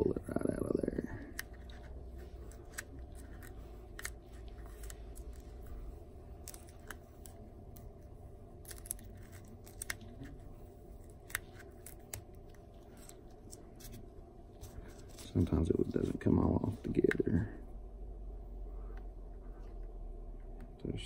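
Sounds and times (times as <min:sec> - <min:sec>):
steady low hum: 0:00.0 - 0:21.0
stencils peeling ticks and crackles: 0:01.3 - 0:05.7, 0:06.3 - 0:07.9, 0:08.6 - 0:10.4.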